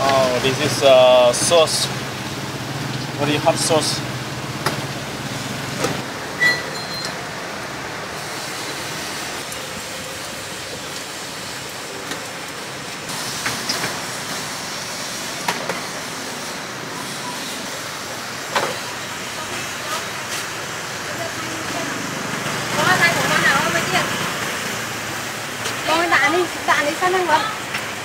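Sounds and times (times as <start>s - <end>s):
road traffic passing: 0.0s - 28.0s.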